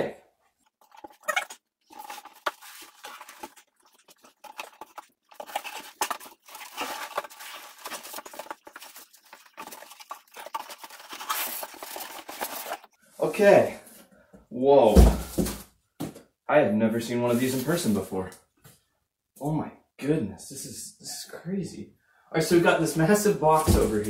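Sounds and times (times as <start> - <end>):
cardboard flaps rustling: 0.8 - 12.9, 23.5 - 24.0.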